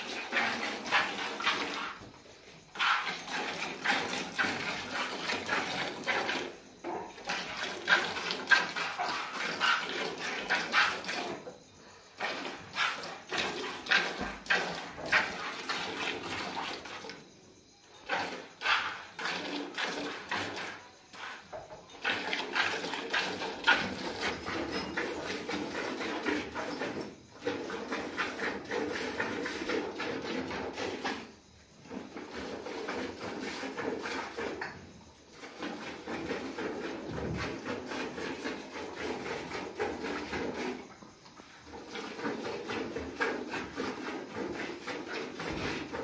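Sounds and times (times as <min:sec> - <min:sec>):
milk squirting into bucket: 0:00.0 - 0:02.1, 0:02.7 - 0:11.5, 0:12.2 - 0:17.2, 0:18.0 - 0:21.4, 0:22.0 - 0:31.3.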